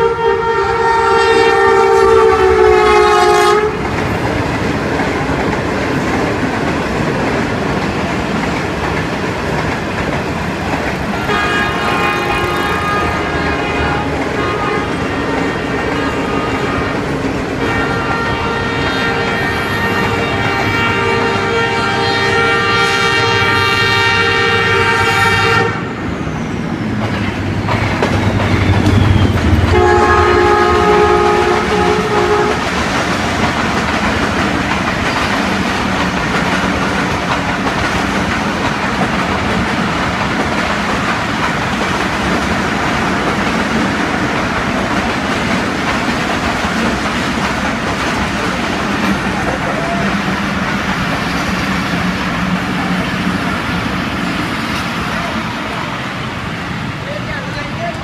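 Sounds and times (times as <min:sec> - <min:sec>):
locomotive horn blasts: 0:00.0 - 0:03.8, 0:11.2 - 0:17.0, 0:17.6 - 0:25.9, 0:29.6 - 0:32.7
train coaches rumbling and clacking: 0:00.0 - 0:58.0.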